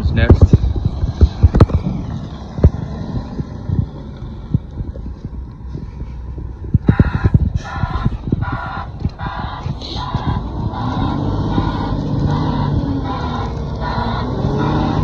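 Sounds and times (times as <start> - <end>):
diesel heavy equipment running: 0.0 - 15.0
pulsing whine: 0.0 - 15.0
wind on microphone: 0.0 - 15.0
scattered knocks: 0.3 - 5.0, 6.7 - 12.9.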